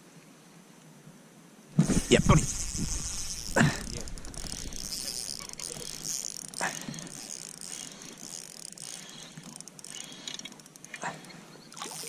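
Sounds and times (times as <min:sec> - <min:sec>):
steady high hiss: 0:01.7 - 0:09.0
fishing reel ratcheting: 0:01.8 - 0:11.0, 0:11.8 - 0:12.0.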